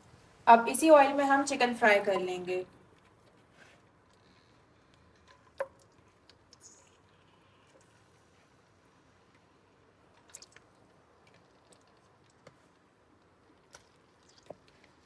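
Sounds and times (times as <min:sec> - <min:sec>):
chicken crackling in oil: 0:10.1 - 0:15.0.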